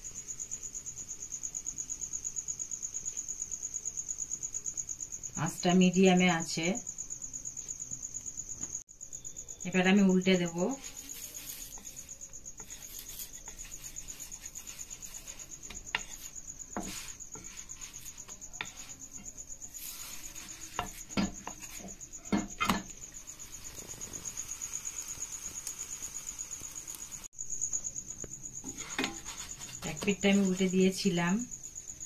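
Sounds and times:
cricket chirping: 0.0 - 32.0
spatula knocking on frying pan: 20.6 - 22.9.

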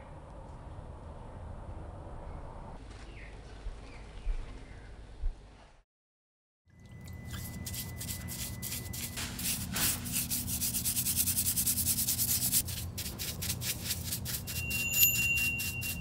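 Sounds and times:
rapid rubbing strokes on surface: 7.4 - 16.0.

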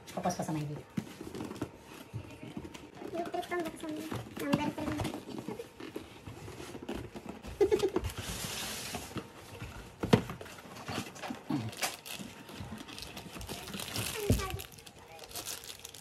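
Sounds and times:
cardboard rubbing and scraping: 1.1 - 11.1
cardboard sliding hiss: 8.1 - 9.4.

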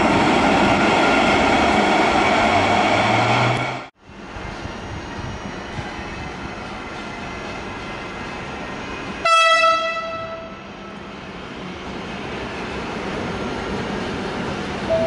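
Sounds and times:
train rumbling: 0.0 - 15.0
train horn blast: 9.2 - 10.7.

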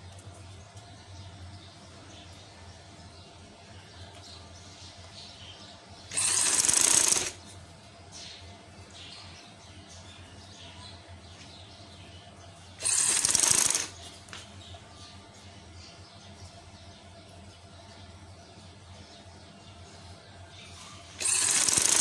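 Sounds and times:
sewing machine stitching: 6.1 - 7.4, 12.8 - 14.0, 21.2 - 22.0.

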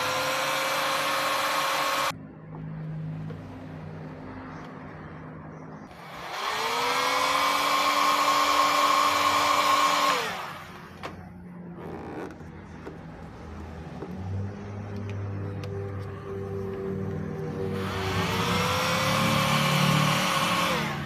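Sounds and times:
hot-air blower motor whine: 0.0 - 2.1, 5.9 - 11.2, 16.5 - 21.0.

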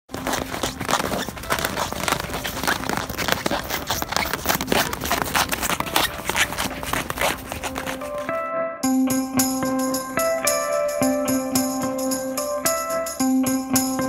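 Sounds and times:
footsteps crunching on snow: 0.1 - 8.4.

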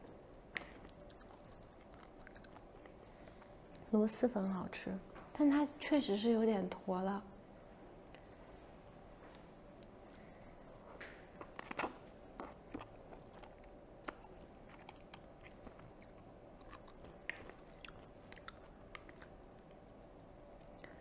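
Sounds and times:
wet mouth clicks and chewing: 0.6 - 3.8, 11.4 - 21.0.

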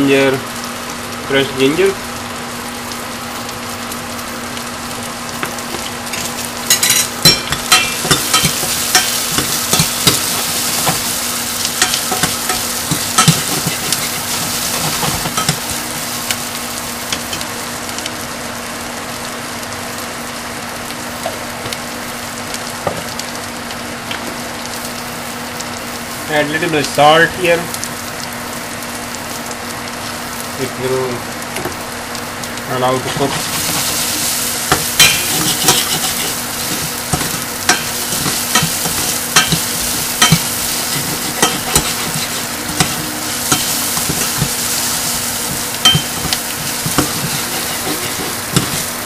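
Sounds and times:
vegetables sizzling in hot ghee: 0.0 - 49.0
metal spoon scraping a pan: 11.8 - 15.6, 33.0 - 49.0
low hum: 33.4 - 49.0.

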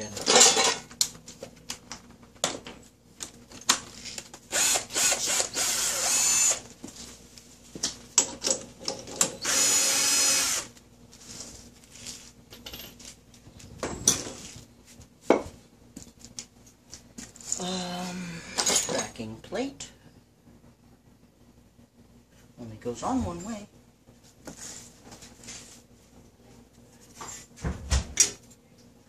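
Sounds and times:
cordless drill running: 4.5 - 6.6, 9.4 - 10.7.

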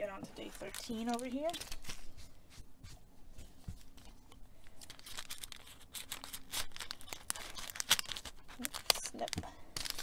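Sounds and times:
paper packet rustling: 0.1 - 2.4, 4.6 - 10.0.

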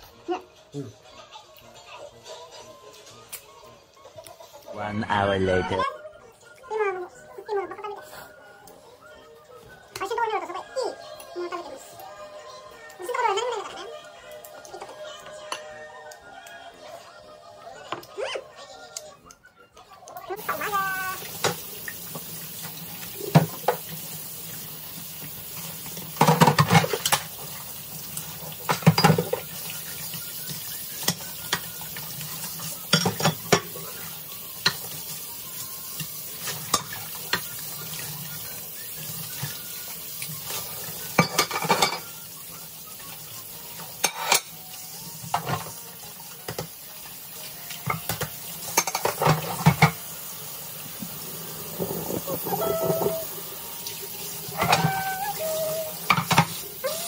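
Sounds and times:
sponge washing dishes: 20.4 - 57.0
crockery clinking: 28.6 - 29.5, 32.9 - 33.9, 41.1 - 42.2, 44.0 - 44.6, 47.8 - 50.0.

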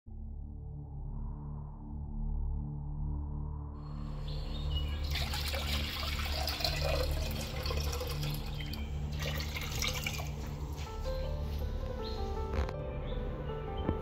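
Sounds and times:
water pouring into clay pot: 4.5 - 10.5.

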